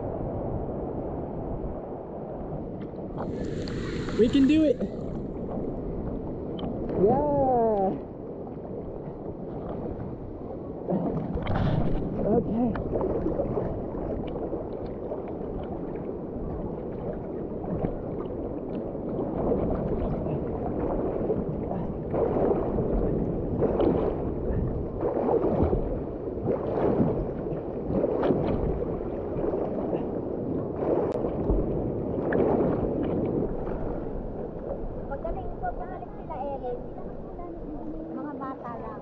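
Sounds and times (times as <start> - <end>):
sea water splashing: 2.3 - 39.0.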